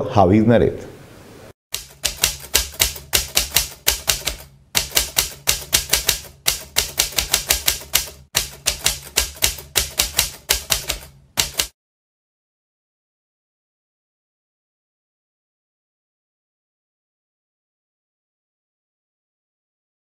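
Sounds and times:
typewriter key clacks: 1.8 - 11.7.

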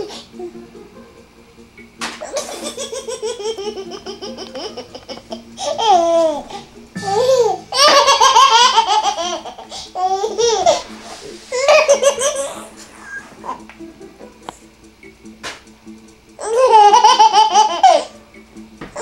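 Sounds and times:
baby laughing: 2.2 - 10.8, 11.5 - 14.5, 16.4 - 18.1.

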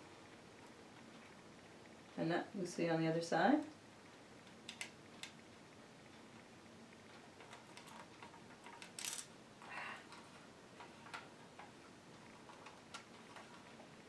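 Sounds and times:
small clicks and taps: 4.4 - 5.4, 7.0 - 9.3, 10.1 - 13.9.

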